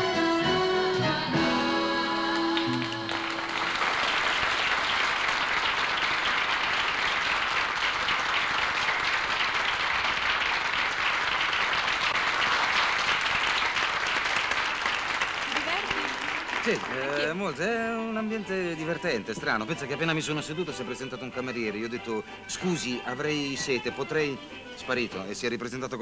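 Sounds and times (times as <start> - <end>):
audience applauding: 2.2 - 20.9.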